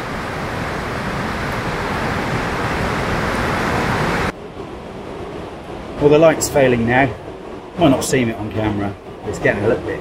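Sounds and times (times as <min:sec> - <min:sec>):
water rushing over rocks: 0:00.0 - 0:04.3.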